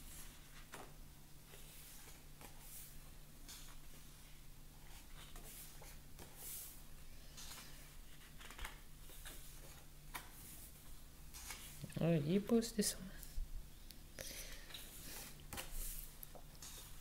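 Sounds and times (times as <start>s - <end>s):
paper pages rustling: 4.8s - 11.9s.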